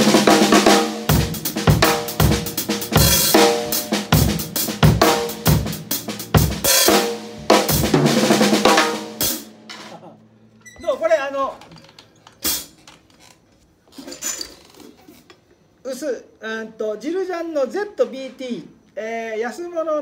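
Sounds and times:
drum kit groove: 0:00.0 - 0:10.2, 0:11.8 - 0:13.2.

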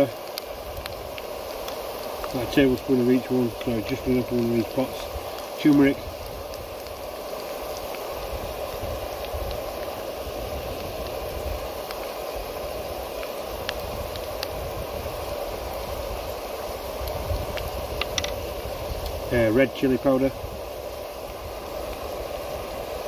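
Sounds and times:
vegetables sizzling in oil: 0:00.0 - 0:23.0
faint clicks: 0:17.0 - 0:18.4.

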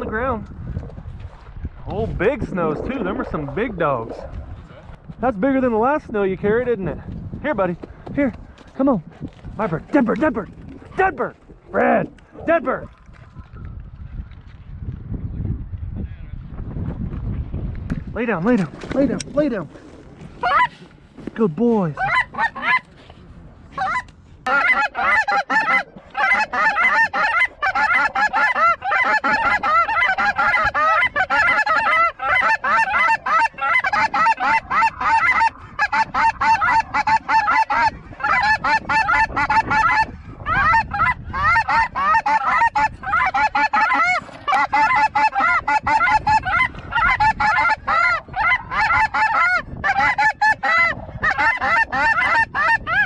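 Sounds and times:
snow geese calling: 0:20.4 - 0:20.9, 0:21.9 - 0:23.0, 0:23.7 - 0:53.0.

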